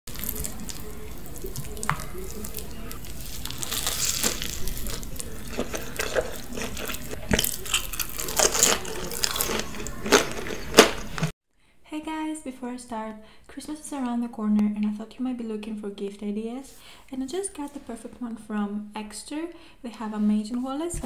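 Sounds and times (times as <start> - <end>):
person chewing pizza: 0.1 - 11.3.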